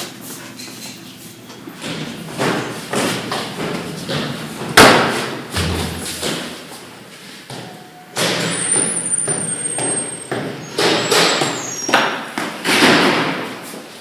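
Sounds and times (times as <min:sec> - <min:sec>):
hurried footsteps on hard floor: 0:01.8 - 0:06.9.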